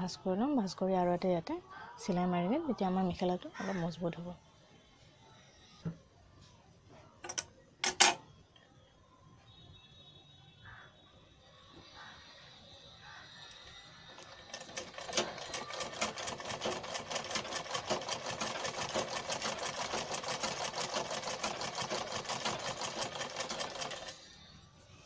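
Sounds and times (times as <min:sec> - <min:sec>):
sewing machine clattering: 0:14.2 - 0:24.2.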